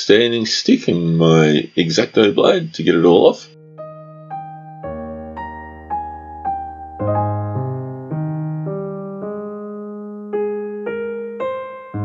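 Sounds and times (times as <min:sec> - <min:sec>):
electric piano notes: 0:03.5 - 0:12.0.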